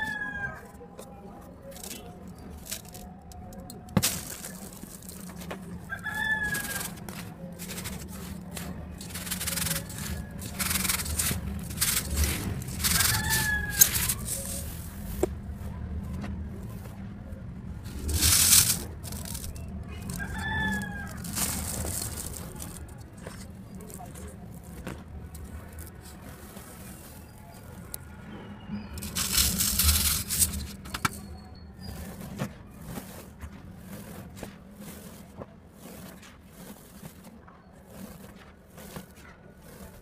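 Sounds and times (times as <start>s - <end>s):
rooster crowing: 0.0s - 0.8s, 5.9s - 7.0s, 12.7s - 14.6s, 20.0s - 21.8s
cement chunks crumbling: 1.0s - 15.4s, 17.8s - 28.1s, 28.9s - 33.4s.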